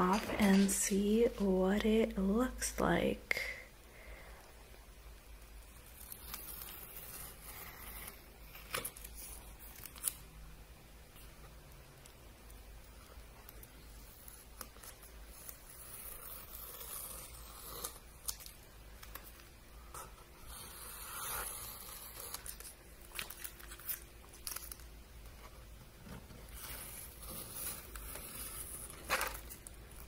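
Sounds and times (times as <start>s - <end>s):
tape peeling off paper: 5.8s - 10.3s, 20.5s - 24.9s.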